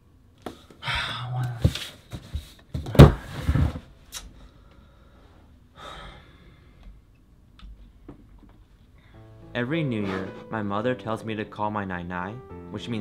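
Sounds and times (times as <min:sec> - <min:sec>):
man sighing: 0:00.8 - 0:01.7, 0:05.8 - 0:06.9
man breathing softly: 0:04.4 - 0:07.1.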